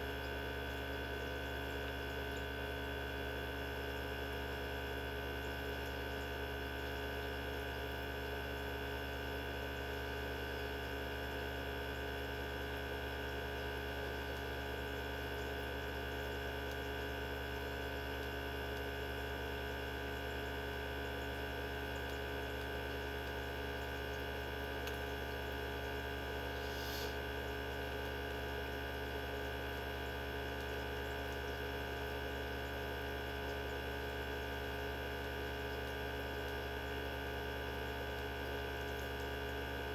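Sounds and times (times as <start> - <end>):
centrifuge motor humming: 21.0 - 27.8.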